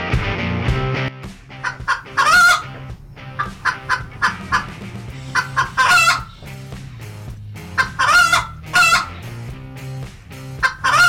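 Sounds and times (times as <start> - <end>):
chicken clucking: 1.6 - 6.5, 7.7 - 9.2, 10.6 - 11.0.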